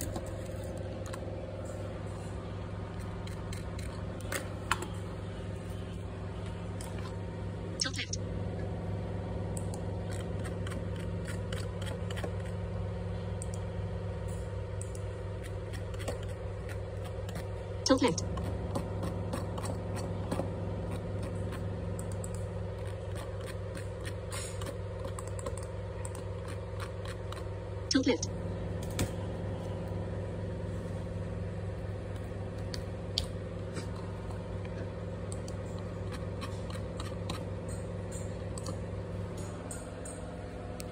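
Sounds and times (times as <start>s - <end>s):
low machine hum: 0.0s - 40.9s.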